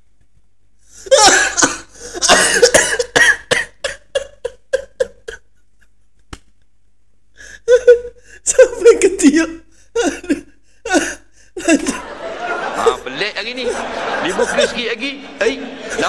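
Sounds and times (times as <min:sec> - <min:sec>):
man laughing hard: 0:01.1 - 0:03.2, 0:03.8 - 0:05.4, 0:11.6 - 0:16.0.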